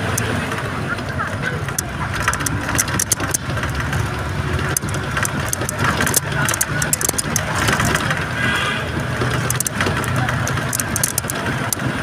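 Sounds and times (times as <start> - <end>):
engine and road drone: 0.0 - 12.0
short rattling clicks: 1.6 - 8.4, 9.1 - 11.9.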